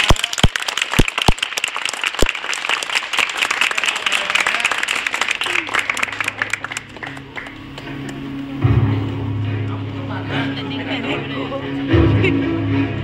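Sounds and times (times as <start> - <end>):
audience applauding: 0.0 - 8.4.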